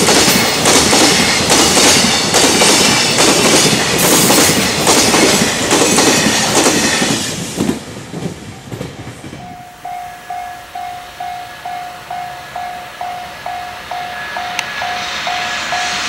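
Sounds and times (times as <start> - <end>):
freight train rushing past: 0.0 - 16.0
level crossing warning bell: 9.4 - 16.0.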